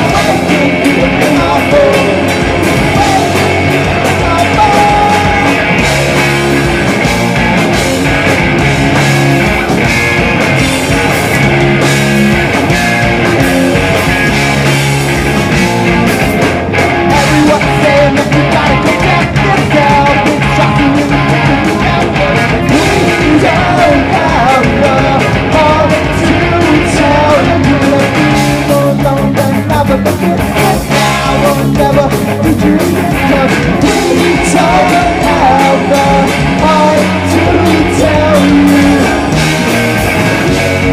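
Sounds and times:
bass guitar: 0.0 - 40.9
drums: 0.0 - 40.9
electric guitars: 0.0 - 40.9.

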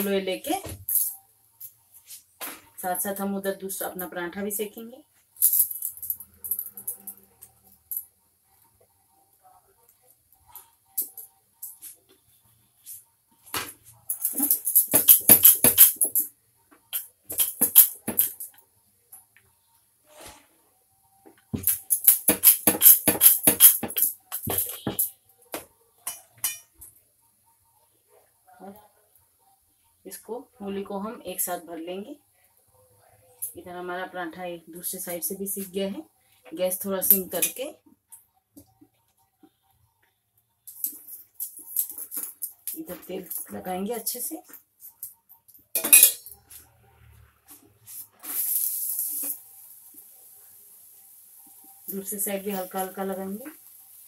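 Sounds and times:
spoon clinking on metal: 26.1 - 26.7, 45.8 - 46.4
oil sizzling: 48.0 - 54.0.

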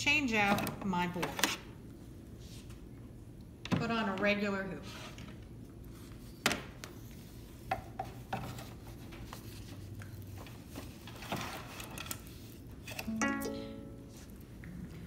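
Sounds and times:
rubbing and handling noise: 4.8 - 13.1.

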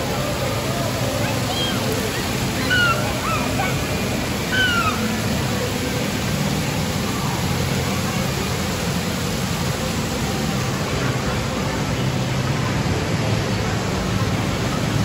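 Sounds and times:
din of distant voices: 0.0 - 15.0
water splashing from sprays: 0.0 - 15.0.

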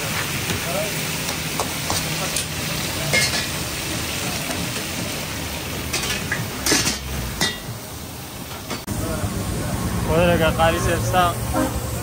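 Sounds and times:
metal pans and utensils clinking: 0.0 - 7.8, 8.4 - 8.9
food sizzling in hot oil: 0.0 - 12.0.

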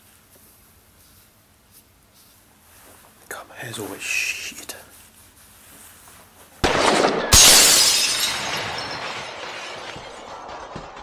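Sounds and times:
glass breaking crash: 6.6 - 11.0.

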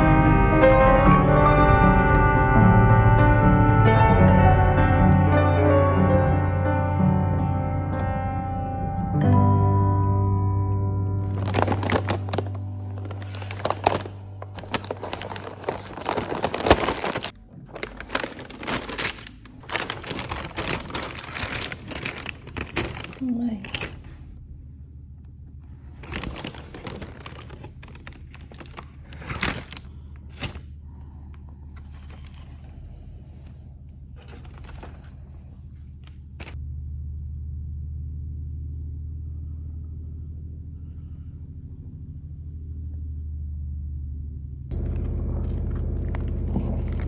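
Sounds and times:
steady low rumble: 0.0 - 47.0
small clicks and crinkly handling: 11.2 - 24.1, 26.0 - 30.6, 34.2 - 35.4.

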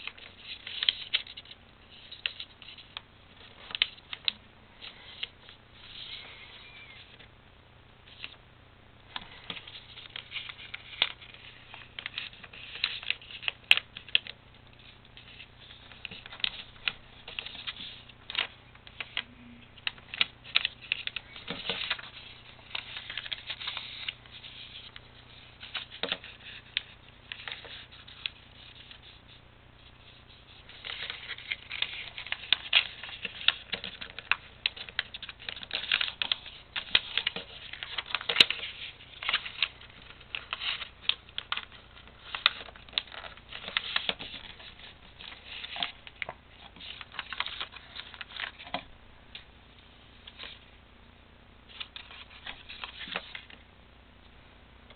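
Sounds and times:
paper rustling and crinkling: 0.0 - 7.2, 9.1 - 19.2, 19.8 - 48.9, 51.7 - 53.6
fingers tapping and scraping paper: 9.1 - 29.2, 30.0 - 48.9.

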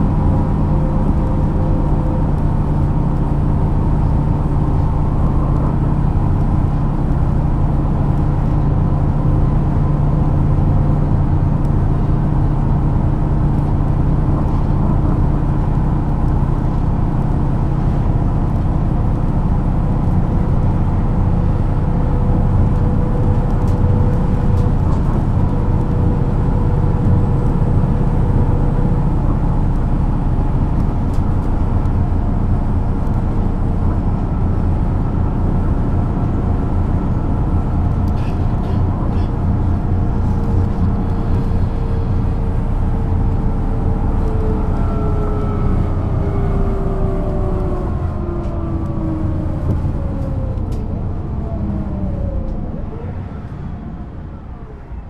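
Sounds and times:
bus diesel engine idling: 0.0 - 55.0.

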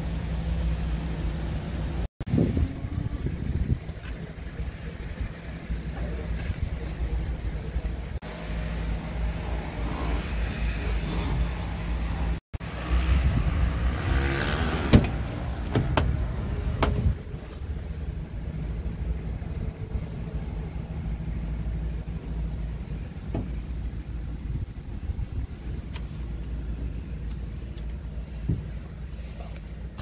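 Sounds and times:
diesel engine idling: 0.0 - 13.6.

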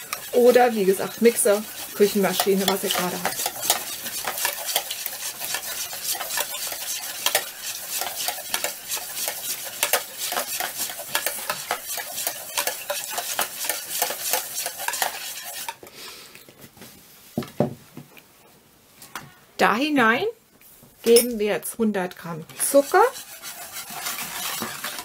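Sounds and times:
whisk clattering in bowl: 0.0 - 15.8, 22.6 - 25.0
whisk knocking in bowl: 0.0 - 15.8, 22.6 - 25.0.

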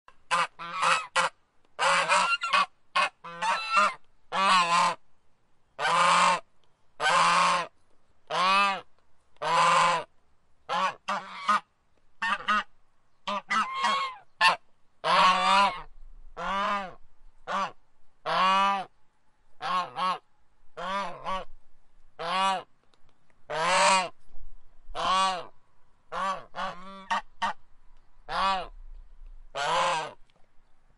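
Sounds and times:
goose honking: 0.3 - 5.0, 5.8 - 6.4, 7.0 - 7.7, 9.4 - 10.1, 10.7 - 12.7, 13.3 - 18.9, 19.6 - 20.2, 20.8 - 21.5, 22.2 - 22.7, 23.5 - 24.1, 25.0 - 25.5, 26.1 - 27.6, 28.3 - 28.7, 29.5 - 30.2.

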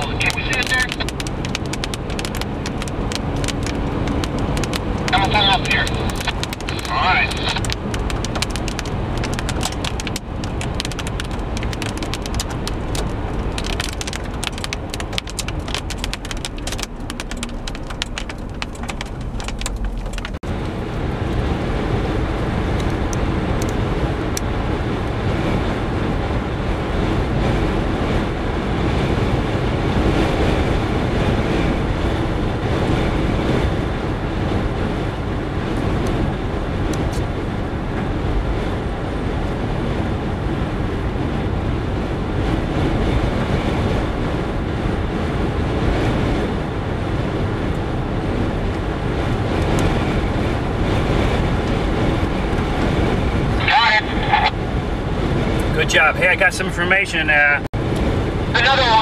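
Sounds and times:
car driving on highway: 0.0 - 59.0
wind buffeting microphone: 0.0 - 59.0.

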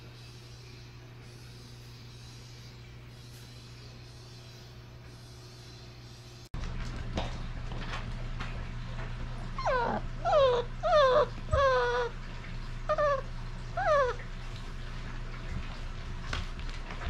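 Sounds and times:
puppy whimpering: 9.5 - 12.2, 12.9 - 14.2.

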